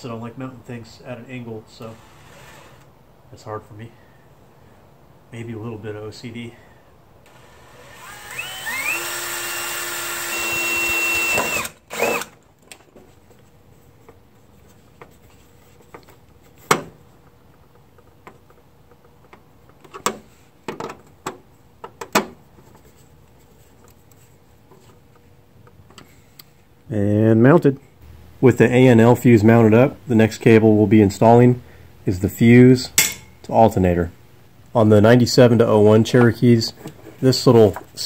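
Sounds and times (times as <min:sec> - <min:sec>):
cordless drill whining: 0:01.9 - 0:02.9, 0:07.3 - 0:12.4.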